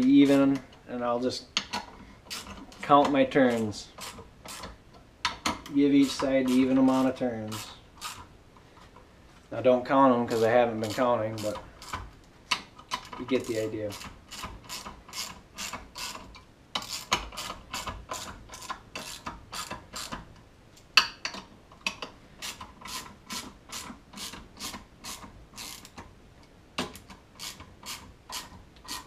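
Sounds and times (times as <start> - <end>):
hand ratchet clicking: 1.6 - 2.9, 4.0 - 8.3, 10.8 - 20.3, 21.2 - 26.0, 26.8 - 29.0.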